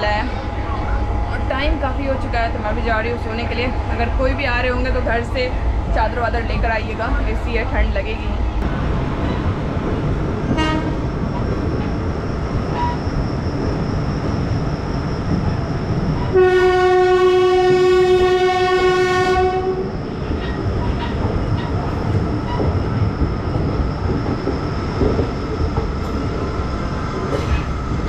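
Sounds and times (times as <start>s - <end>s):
train rumble and clatter: 0.0s - 28.0s
train horn blast: 10.6s - 11.0s, 16.3s - 19.9s.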